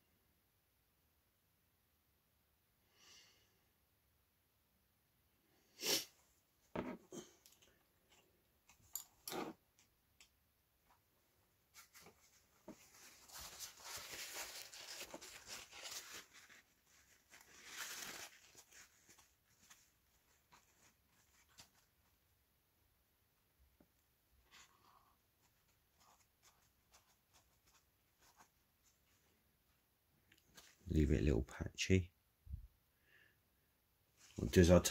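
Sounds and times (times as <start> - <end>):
paper towel rustling: 11.7 - 22.1.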